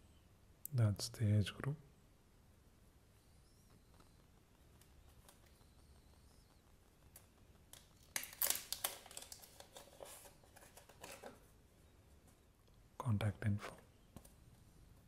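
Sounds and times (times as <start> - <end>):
paper crinkling and rustling: 7.8 - 11.4.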